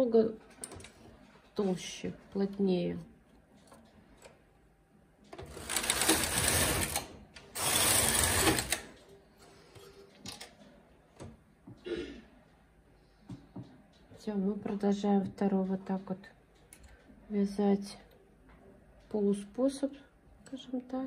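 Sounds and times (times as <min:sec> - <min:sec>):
knitting machine carriage swishing: 0:05.4 - 0:09.0.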